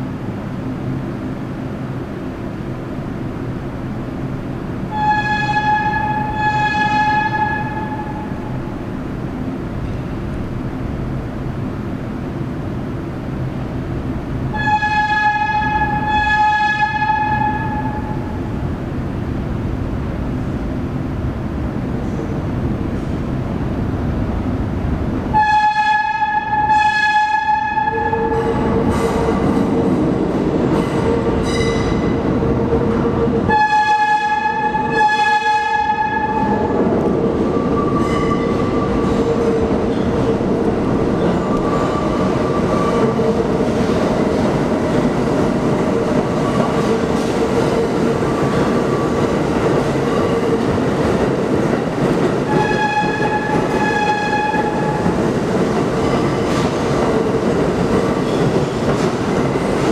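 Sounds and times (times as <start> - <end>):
train rumbling on rails: 0.0 - 59.9
subway train horn blasts: 4.8 - 8.9, 14.4 - 18.6, 25.3 - 44.0, 52.3 - 55.3.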